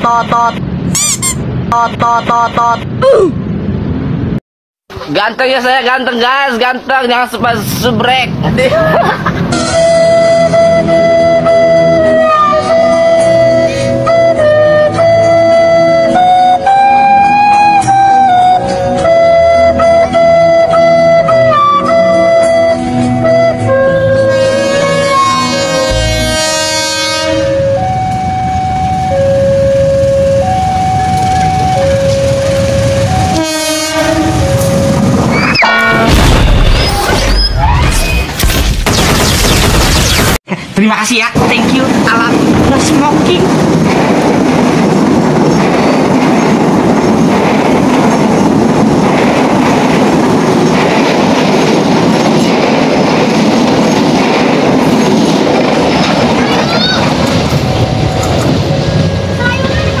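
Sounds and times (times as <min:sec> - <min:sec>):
diesel locomotive rumble: 0:07.4 - 0:36.7, 0:41.4 - 1:00.0.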